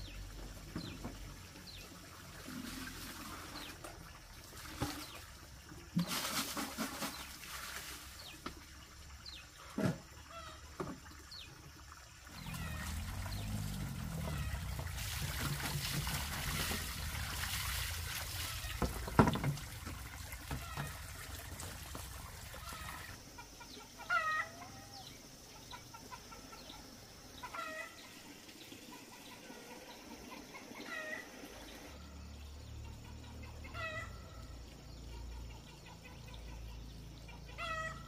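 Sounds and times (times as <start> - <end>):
water pouring: 0.3 - 23.2.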